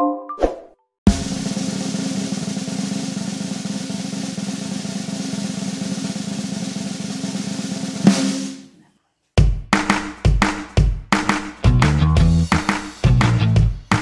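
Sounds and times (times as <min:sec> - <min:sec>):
cymbal crash: 0:01.1 - 0:08.6
drum roll: 0:01.1 - 0:08.7, 0:09.4 - 0:14.0.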